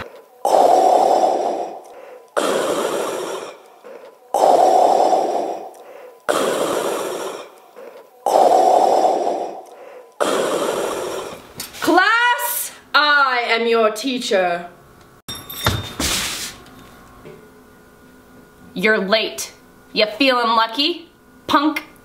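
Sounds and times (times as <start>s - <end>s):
rasping respirator breathing: 0.0s - 11.8s.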